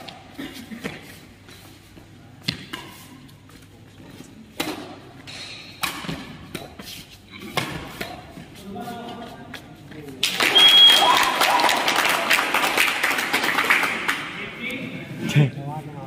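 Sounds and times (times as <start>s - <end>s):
badminton racket hitting shuttlecock: 4.5s - 8.5s.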